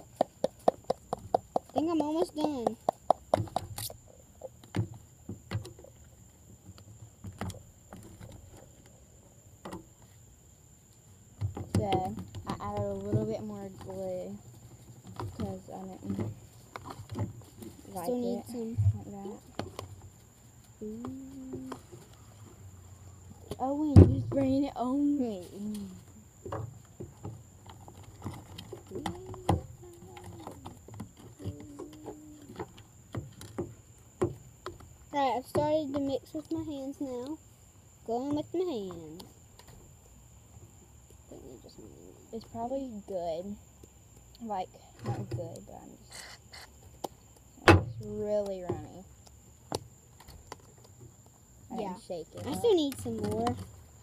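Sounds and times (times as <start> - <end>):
quiet voice: 20.8 - 21.9, 31.4 - 32.6.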